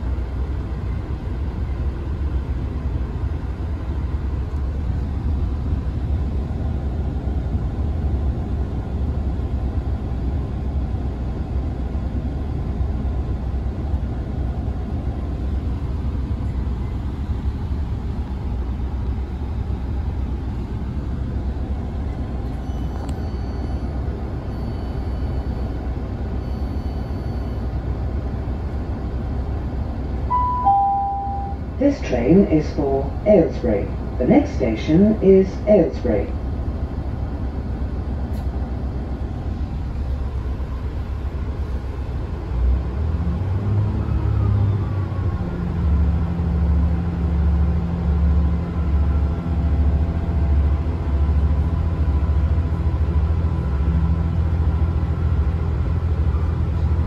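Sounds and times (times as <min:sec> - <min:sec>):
train engine low rumble: 0:00.0 - 0:57.0
faint high-pitched tone: 0:30.3 - 0:33.7.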